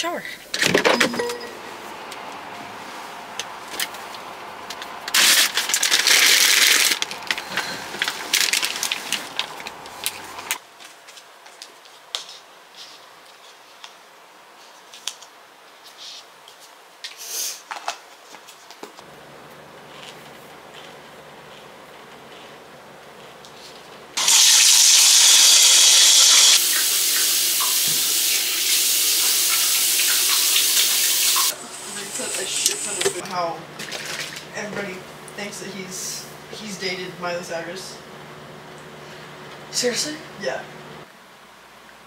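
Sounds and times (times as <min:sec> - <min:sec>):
rustling and crinkling: 0:03.7 - 0:19.1, 0:19.8 - 0:24.1.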